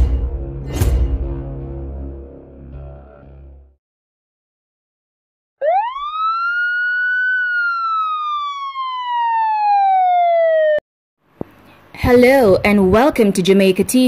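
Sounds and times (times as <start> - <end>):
police siren wailing: 5.6 - 10.8.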